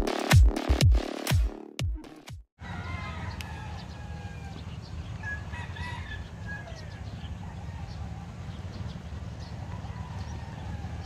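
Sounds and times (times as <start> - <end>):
rooster crowing: 2.6 - 8.3, 9.6 - 11.0.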